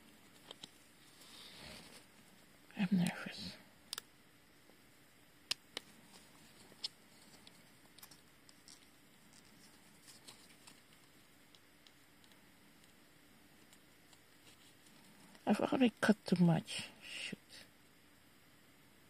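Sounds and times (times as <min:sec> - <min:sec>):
paper rustling in fingers: 0:06.0 - 0:11.2.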